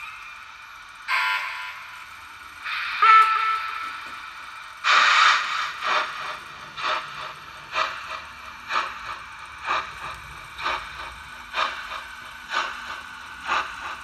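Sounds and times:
steam locomotive chuffs: 0.0s - 14.0s
loud steam release: 2.6s - 4.1s, 4.8s - 14.0s.

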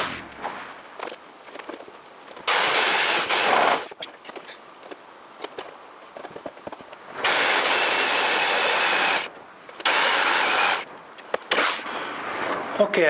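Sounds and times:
cordless drill boring through wood: 2.5s - 3.9s, 7.2s - 10.8s.

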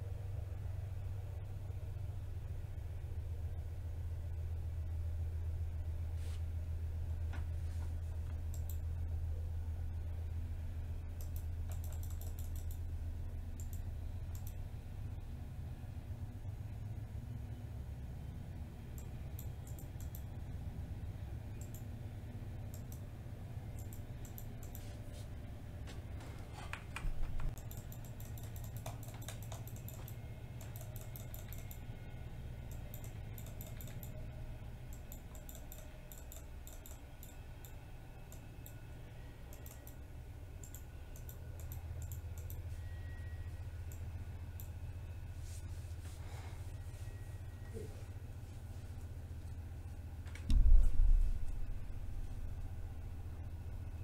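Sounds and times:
steady low hum: 0.0s - 54.0s
keyboard and mouse clicking: 8.3s - 8.8s, 11.2s - 12.9s, 13.6s - 14.6s, 18.9s - 20.3s, 21.6s - 21.9s, 22.7s - 23.0s, 23.8s - 24.9s, 26.7s - 31.8s, 32.7s - 34.2s, 34.9s - 38.8s, 39.5s - 40.0s, 40.6s - 42.6s
loud knock: 50.5s - 51.4s.

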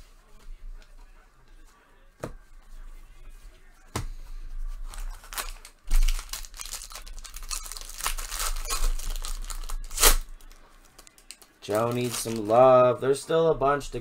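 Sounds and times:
foil wrapper tearing and crinkling: 4.9s - 12.6s.

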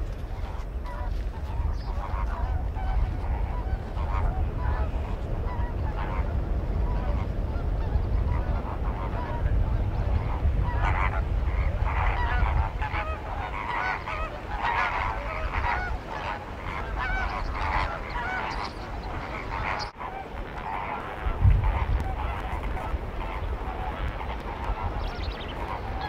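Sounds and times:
flamingos honking and calling: 0.0s - 26.0s.

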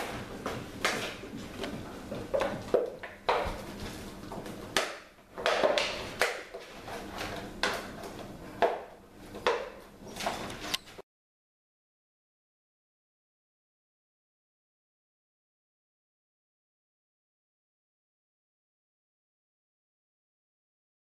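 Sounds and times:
puppies scuffling on tile floor: 0.0s - 4.7s, 5.4s - 8.4s.

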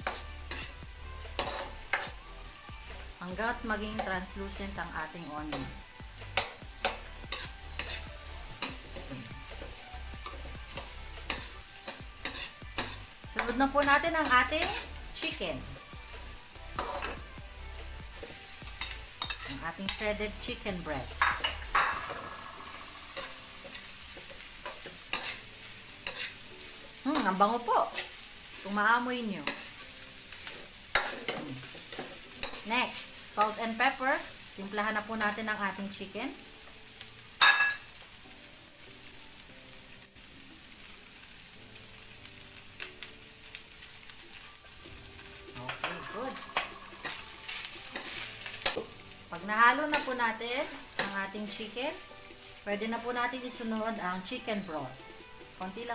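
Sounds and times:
chicken sizzling in a wok: 0.0s - 55.9s
metal spoon scraping pan: 6.4s - 9.1s, 10.2s - 15.0s, 18.2s - 20.1s, 21.2s - 26.4s, 45.7s - 48.8s
metal ladle scraping pan: 45.7s - 48.8s.

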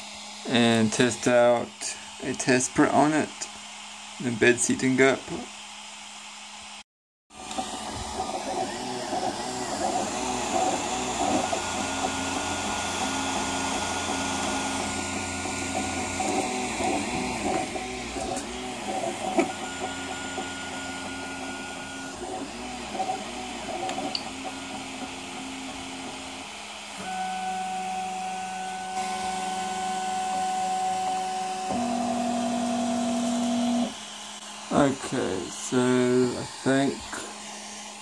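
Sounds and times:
stepper motors whining: 7.4s - 38.0s.

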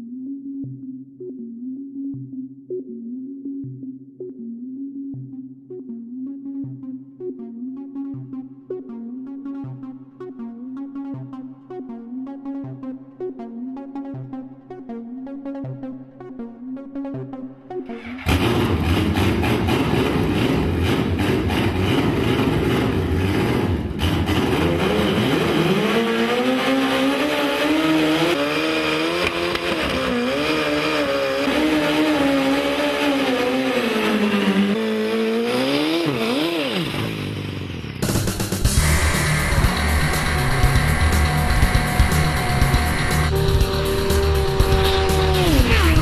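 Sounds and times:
motorcycle engine revving: 18.0s - 46.0s.

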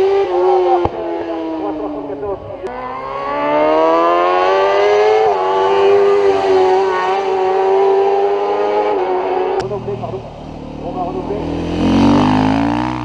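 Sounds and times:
racing engine at full throttle: 0.0s - 13.0s.

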